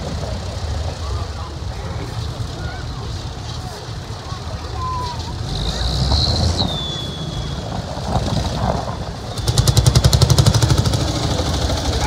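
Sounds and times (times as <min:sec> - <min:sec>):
tractor engine running: 0:00.0 - 0:12.0
tractor engine fast pulsing beat: 0:09.2 - 0:12.0.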